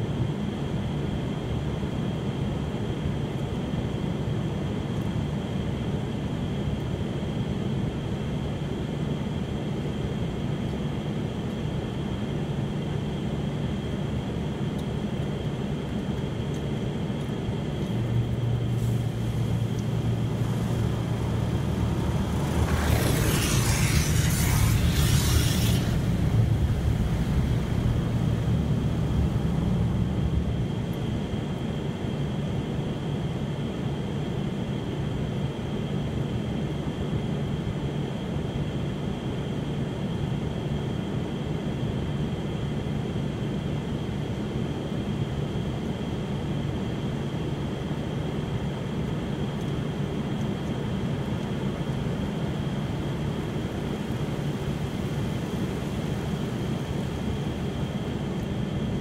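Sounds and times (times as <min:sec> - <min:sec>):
car wash machinery rumble: 0:00.1 - 0:36.6, 0:39.9 - 0:59.0
thin high whine: 0:18.0 - 0:32.6
water spraying onto car: 0:18.2 - 0:30.9.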